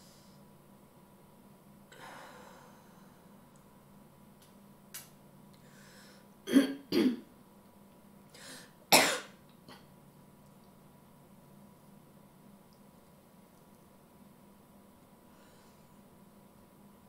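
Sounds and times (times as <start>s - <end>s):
soft breaths: 1.9s - 3.7s, 5.6s - 6.4s, 15.2s - 16.3s
woman coughing: 6.5s - 7.2s, 8.9s - 9.4s.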